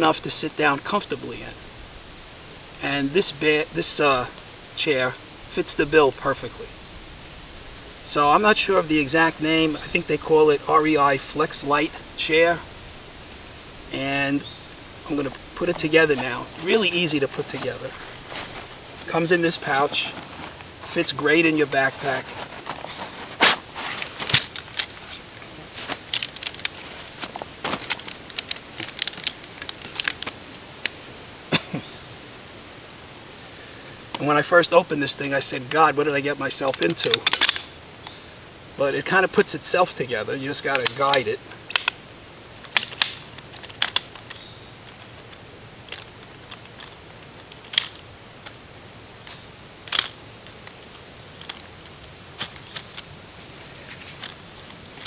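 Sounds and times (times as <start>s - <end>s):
fabric rustling: 15.0s - 21.2s, 21.8s - 30.4s
camp chair poles snapping into joints: 22.2s - 31.0s, 36.6s - 38.1s, 40.7s - 42.0s, 42.6s - 48.6s, 49.2s - 55.0s.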